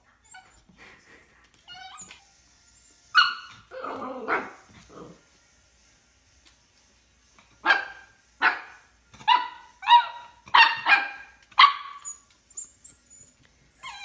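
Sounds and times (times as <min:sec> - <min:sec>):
puppy yapping: 0:07.7 - 0:12.7.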